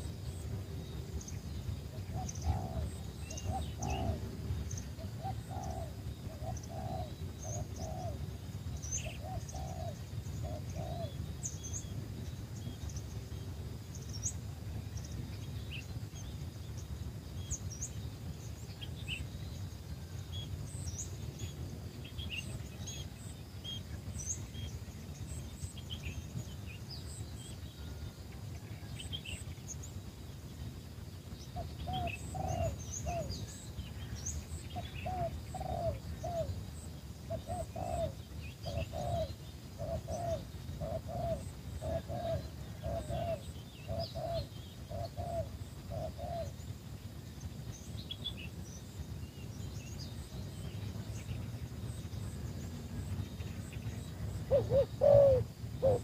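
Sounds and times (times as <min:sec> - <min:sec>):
small birds chirping: 0:00.0 - 0:56.0
steady low rumble: 0:00.0 - 0:56.0
dove cooing: 0:01.8 - 0:11.5, 0:31.6 - 0:34.1, 0:34.7 - 0:46.6, 0:53.8 - 0:56.0.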